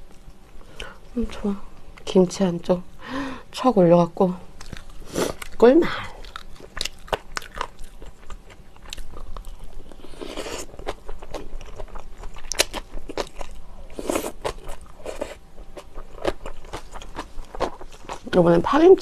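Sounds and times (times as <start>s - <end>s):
crunchy chewing: 4.6s - 18.4s.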